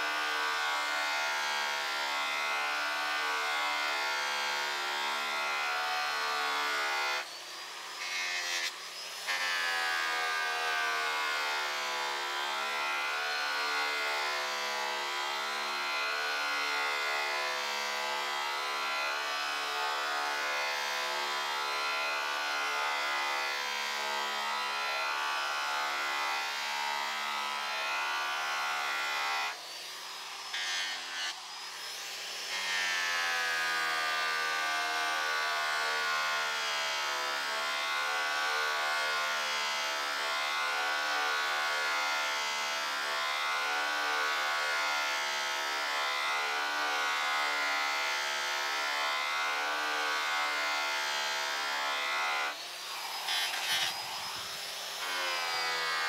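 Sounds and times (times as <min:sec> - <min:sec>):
electric polisher motor whine: 0:00.0 - 0:56.0
buffing wheel rubbing metal: 0:52.8 - 0:54.7.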